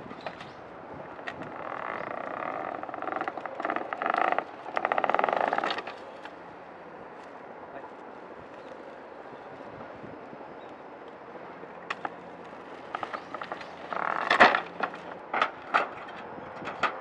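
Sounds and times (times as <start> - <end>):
wooden lattice scraping and creaking: 1.2 - 6.3, 12.0 - 17.0.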